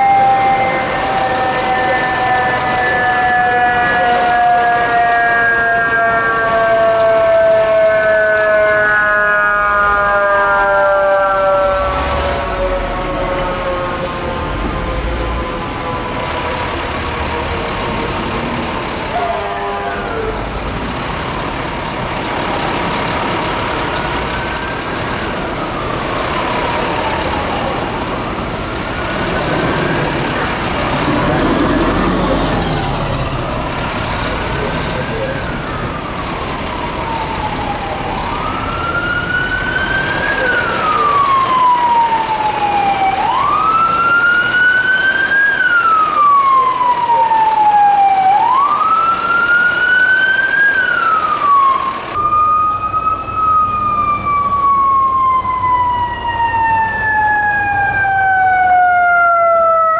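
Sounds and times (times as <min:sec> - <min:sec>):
siren wailing: 0:00.0 - 0:20.9, 0:22.3 - 0:59.9
city traffic: 0:00.0 - 0:59.9
heavy engine rumble: 0:11.5 - 0:44.5.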